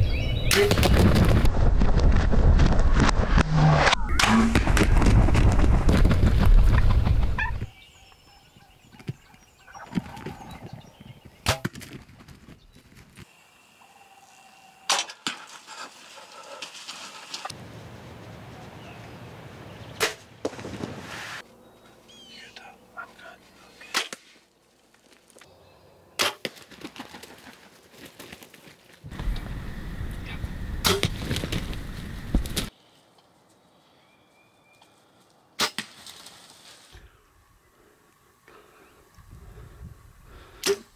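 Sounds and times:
turkey wings beating on dirt: 4.6s - 7.8s, 8.9s - 13.3s, 26.4s - 29.6s, 30.9s - 32.7s
bow shot crack: 20.0s - 21.4s, 30.8s - 31.3s, 40.6s - 40.9s
faint bird chirps: 21.7s - 23.9s.

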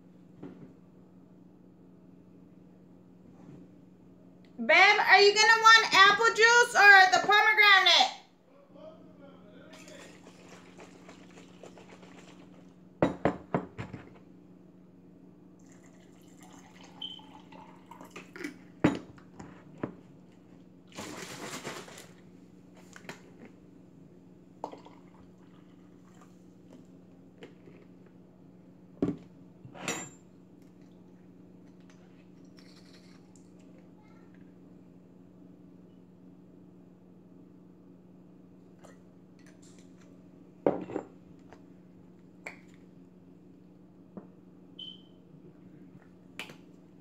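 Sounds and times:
steady low hum: 0.0s - 21.0s
juice pouring into glass: 15.6s - 18.5s, 24.6s - 26.4s.

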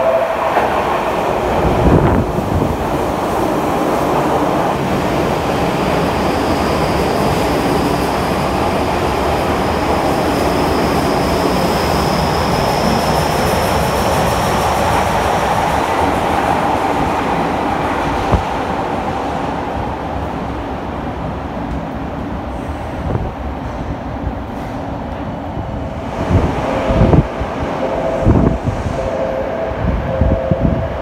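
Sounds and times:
train rushing through station: 0.0s - 31.0s
wheels rumbling on rail: 0.0s - 31.0s.

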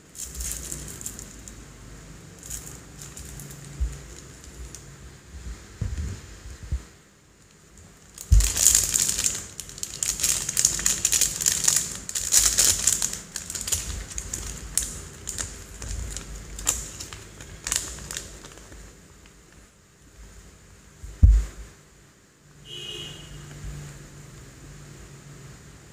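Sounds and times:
plastic bags crinkling: 0.0s - 1.7s, 2.3s - 4.9s, 7.5s - 19.7s
low thump: 21.0s - 21.6s.

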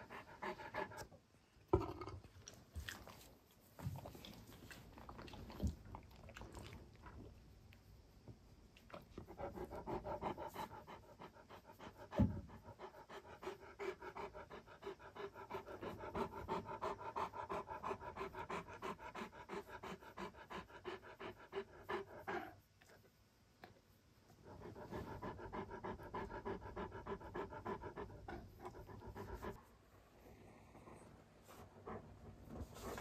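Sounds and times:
dog panting: 0.0s - 1.2s, 9.0s - 23.0s, 24.3s - 29.7s, 30.3s - 33.0s.

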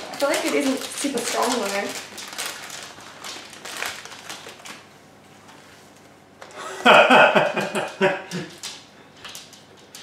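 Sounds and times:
plastic candy packet crinkling: 0.0s - 4.9s.

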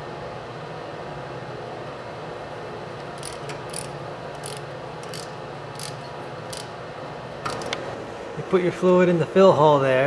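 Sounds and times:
steady background hum: 0.0s - 10.0s
wrench clicking on metal: 3.2s - 6.7s.

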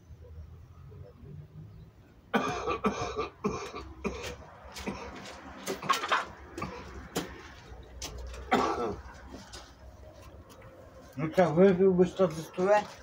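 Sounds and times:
man coughing: 2.3s - 5.2s, 8.5s - 9.1s.

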